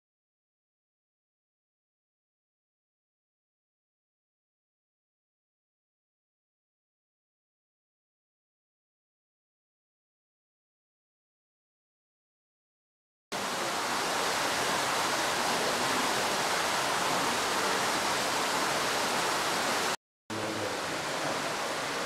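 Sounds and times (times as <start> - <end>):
stream rushing over rocks: 13.3 - 22.0.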